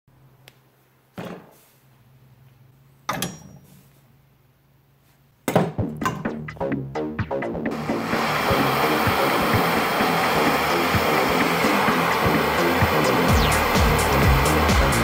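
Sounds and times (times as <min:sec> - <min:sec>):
items thunking on hard board: 0:01.2 - 0:01.6
loud music with a beat: 0:06.2 - 0:09.7, 0:10.5 - 0:15.0.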